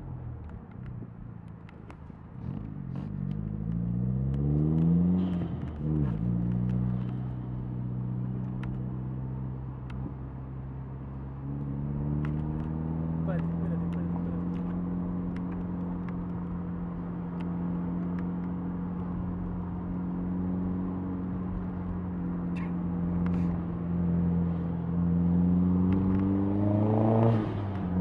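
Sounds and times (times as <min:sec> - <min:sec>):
car engine from inside cabin: 0:02.4 - 0:28.0.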